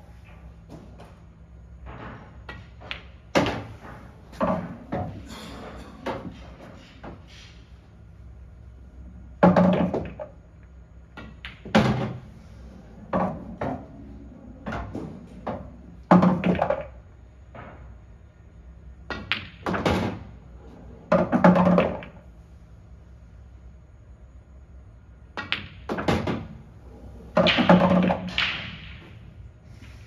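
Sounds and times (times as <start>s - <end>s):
potted balls thudding and rolling: 0.2s - 5.3s, 9.2s - 18.3s, 19.0s - 22.3s, 25.3s - 29.5s
pool balls striking each other: 1.8s - 7.3s, 9.3s - 10.4s, 11.1s - 12.3s, 13.0s - 17.9s, 19.0s - 20.4s, 21.0s - 22.2s, 25.4s - 29.3s.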